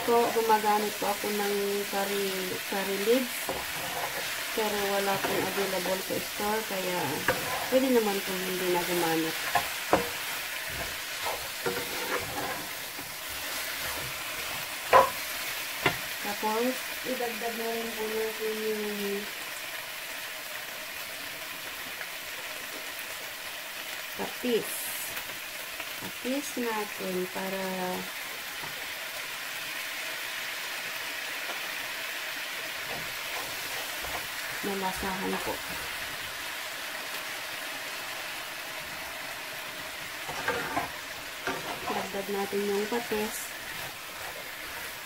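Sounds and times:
chicken sizzling in a frying pan: 0.0s - 45.0s
spatula stirring and scraping: 2.0s - 16.3s, 32.6s - 36.4s, 39.6s - 45.0s.

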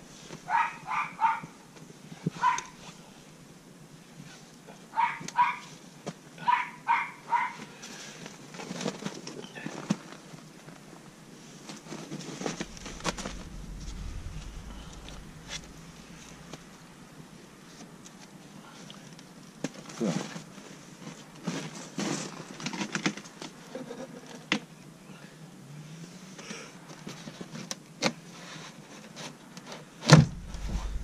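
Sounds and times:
dog barking: 0.5s - 1.5s, 2.4s - 2.8s, 5.0s - 5.7s, 6.4s - 7.7s.

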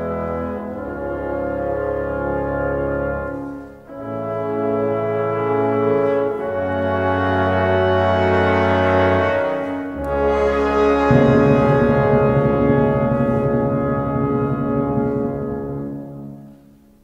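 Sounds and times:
brass: 0.0s - 16.8s
orchestra playing held chords: 10.0s - 16.6s.

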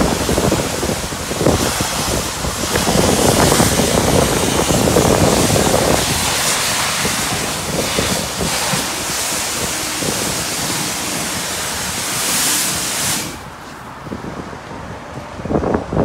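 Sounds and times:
pressure washer spraying water: 0.0s - 14.0s.

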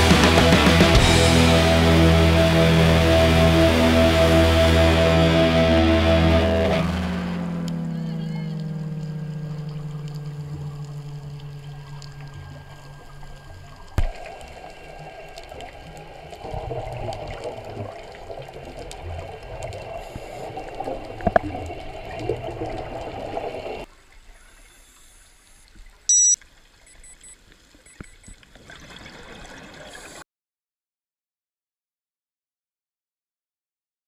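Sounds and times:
underwater moving water and bubbles: 6.7s - 30.2s
short electronic beep: 26.1s - 28.3s.

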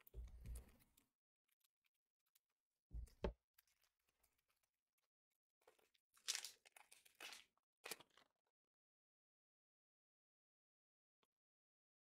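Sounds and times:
foil wrapper crinkling: 6.2s - 8.1s.

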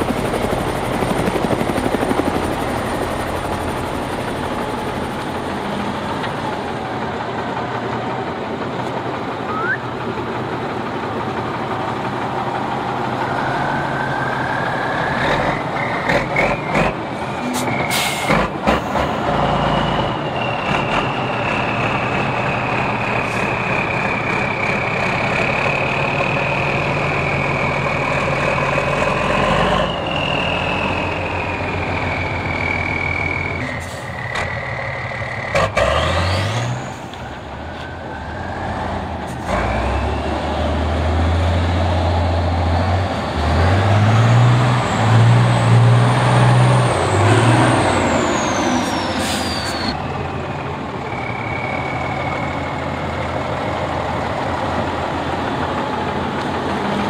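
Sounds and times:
heavy truck engine revving: 2.6s - 57.0s
high gliding whistle: 9.5s - 9.9s, 29.8s - 34.9s, 48.2s - 50.0s.

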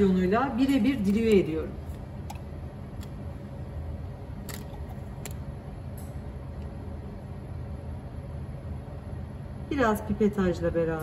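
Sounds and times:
computer fan humming: 0.0s - 11.0s.

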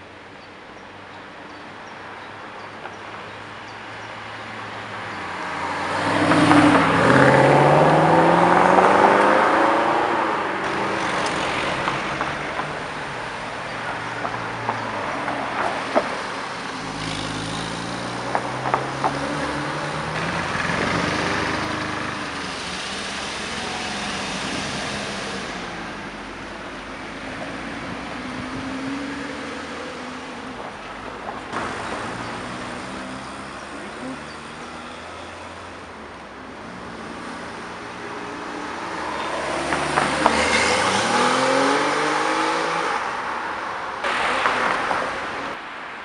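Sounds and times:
sports cars accelerating past: 5.1s - 12.8s, 36.9s - 45.6s.

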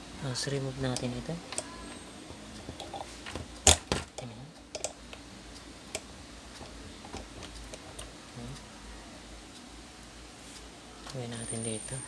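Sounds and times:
plastic parts clicking and knocking: 2.7s - 5.0s.

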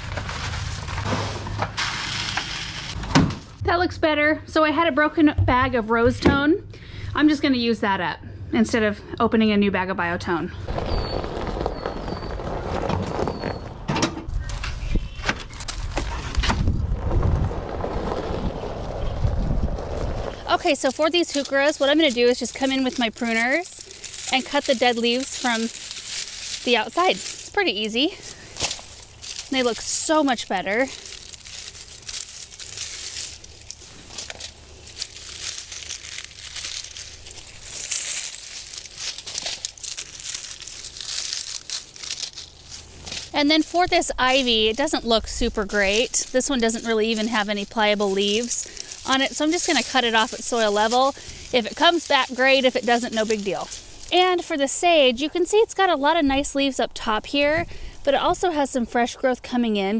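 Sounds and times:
dry leaves crackling: 0.0s - 3.6s, 10.6s - 13.6s, 16.9s - 59.2s
steady low rumble: 14.2s - 54.2s.

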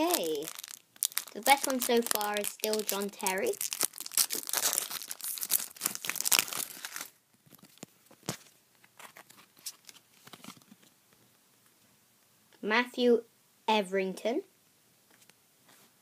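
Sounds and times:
foil packet crinkling and tearing: 0.0s - 10.8s
cards rustling: 0.0s - 10.9s.

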